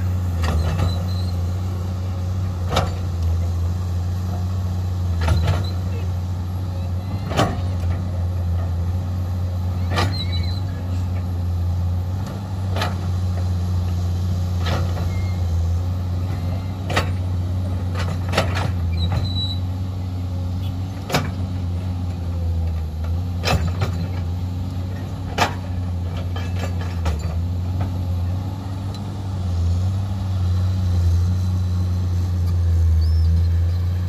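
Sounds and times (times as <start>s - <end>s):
excavator diesel engine: 0.0s - 34.0s.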